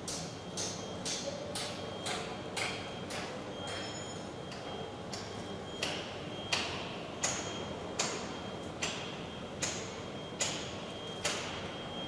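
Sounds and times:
sharp metallic knocks: 5.2s - 11.8s.

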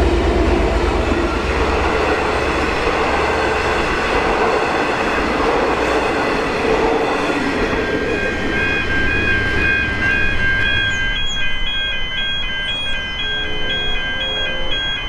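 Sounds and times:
crossing warning bell ringing: 0.0s - 15.0s
train wheels rumbling on rails: 0.0s - 15.0s.

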